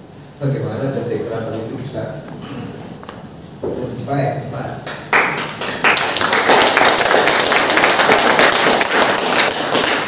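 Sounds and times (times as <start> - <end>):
audience applauding: 5.1 - 10.0.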